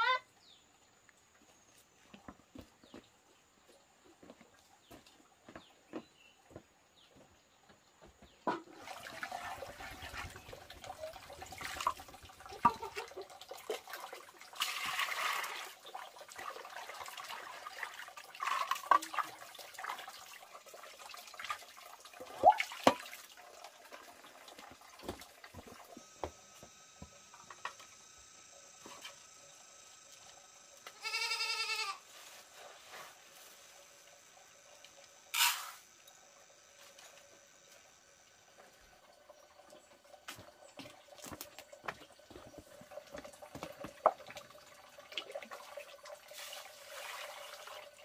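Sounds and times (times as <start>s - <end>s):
drawn-out animal call: 0.0s - 0.2s, 31.0s - 32.0s.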